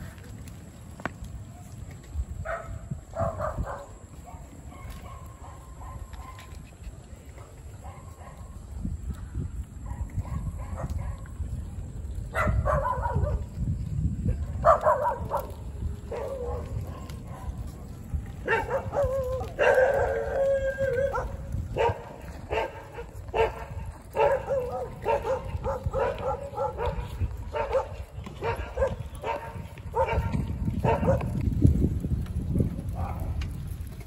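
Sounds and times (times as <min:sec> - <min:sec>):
dog barking and yipping: 0:02.5 - 0:06.5, 0:12.3 - 0:13.5, 0:14.6 - 0:17.6, 0:18.4 - 0:31.4.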